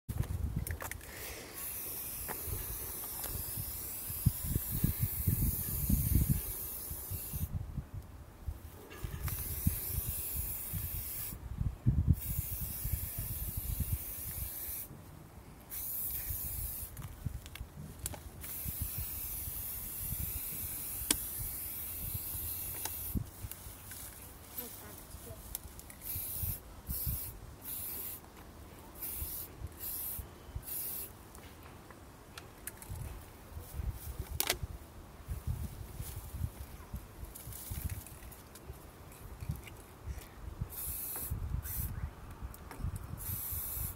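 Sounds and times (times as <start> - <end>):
spray paint can hissing: 1.2 - 7.5, 9.1 - 11.4, 12.2 - 14.9, 15.7 - 17.1, 18.4 - 23.5, 25.9 - 28.2, 29.0 - 31.1, 40.6 - 42.0, 43.1 - 43.9.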